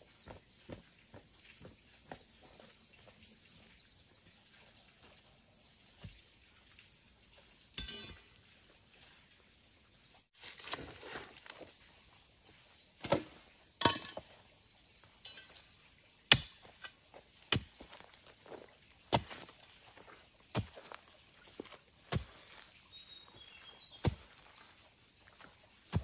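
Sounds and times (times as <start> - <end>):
insects droning: 0.0 - 26.0
chopping strikes: 16.3 - 16.9.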